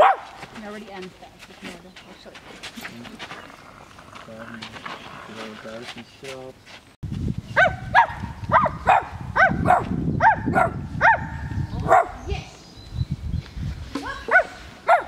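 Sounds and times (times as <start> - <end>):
people barking like dogs: 0.0 - 0.4, 7.6 - 12.2, 14.0 - 15.0.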